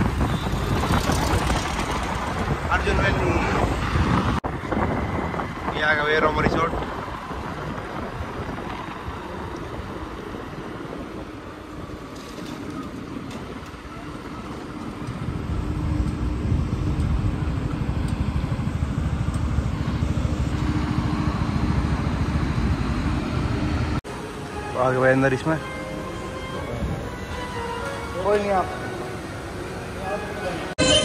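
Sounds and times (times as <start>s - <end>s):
wind on microphone: 0.0s - 24.0s.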